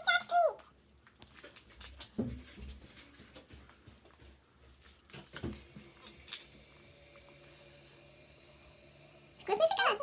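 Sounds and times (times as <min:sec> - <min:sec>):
foil wrapper crinkling: 0:00.1 - 0:02.4.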